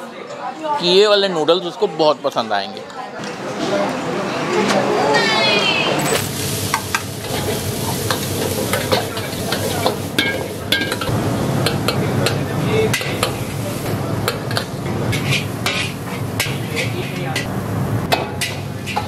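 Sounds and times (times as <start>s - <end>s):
vegetables sizzling in a wok: 6.1s - 19.0s
ladle scraping and knocking pan: 14.2s - 17.5s, 18.1s - 19.0s.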